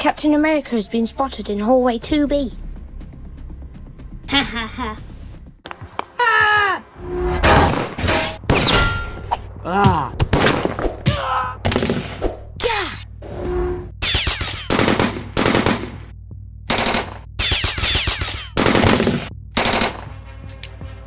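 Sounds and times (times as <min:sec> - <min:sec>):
automatic gunfire bursts: 0:14.7 - 0:16.0.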